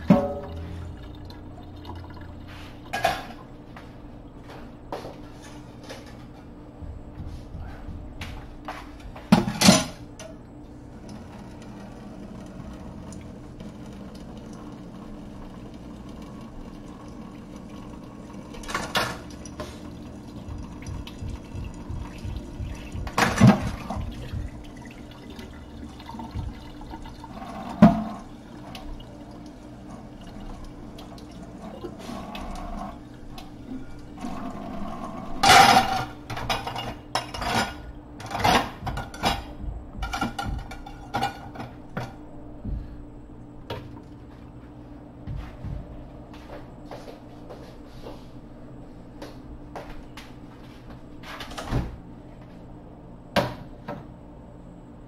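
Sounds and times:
dishes clattering: 0:02.9 - 0:03.4, 0:09.2 - 0:10.0, 0:20.7 - 0:24.5, 0:35.4 - 0:42.2
tap water running into sink: 0:11.0 - 0:34.7
dishes knocking: 0:20.6 - 0:25.0, 0:35.4 - 0:42.2.

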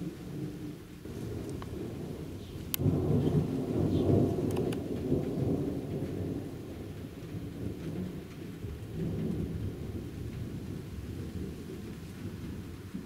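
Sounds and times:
rolling thunder: 0:00.0 - 0:13.0
faint sharp ticks: 0:04.4 - 0:04.9.

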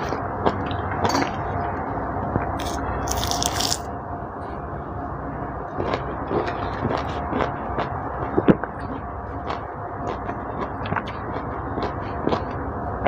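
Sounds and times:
orange segments being chewed: 0:02.6 - 0:03.8.

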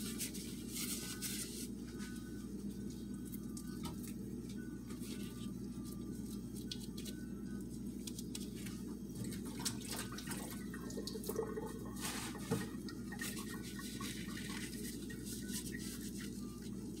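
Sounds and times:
corn husks rustling and crackling: 0:00.0 - 0:02.4, 0:12.0 - 0:12.6, 0:13.2 - 0:17.0
steady low hum: 0:00.0 - 0:17.0.

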